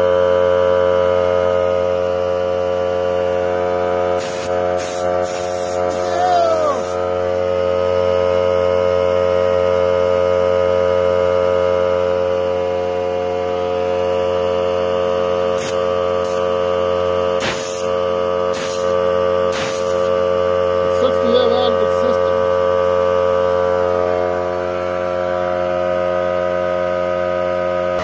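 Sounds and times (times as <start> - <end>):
air compressor humming: 0.0 - 10.2, 11.2 - 28.0
short hiss bursts: 4.2 - 6.2, 17.4 - 17.9, 18.5 - 18.9, 19.5 - 20.1.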